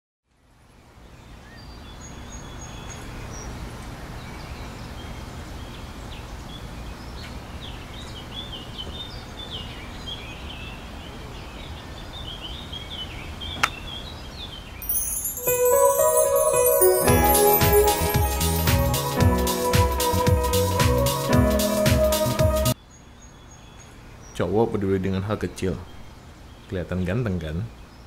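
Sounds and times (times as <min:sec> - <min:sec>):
small birds chirping: 0:05.6 - 0:15.4.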